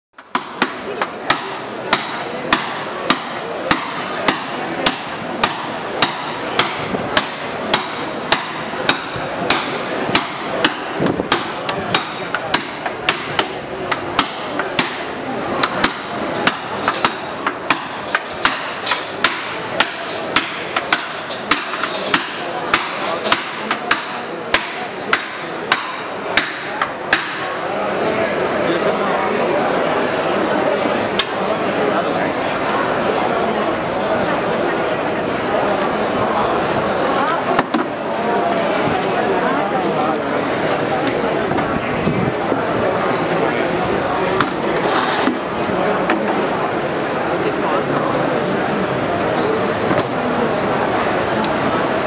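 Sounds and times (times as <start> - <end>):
hammer striking metal hoops: 0.2 - 27.6.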